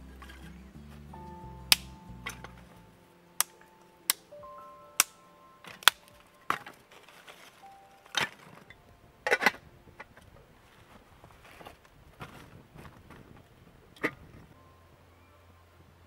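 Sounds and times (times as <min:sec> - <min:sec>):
dry twigs cracking: 0:03.4 - 0:04.2, 0:05.7 - 0:10.1.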